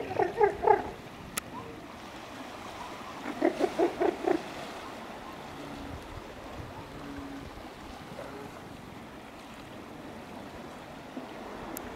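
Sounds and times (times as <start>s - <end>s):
elephant seal calling: 0.0s - 1.8s, 2.8s - 5.9s
surf and water noise: 0.0s - 11.9s.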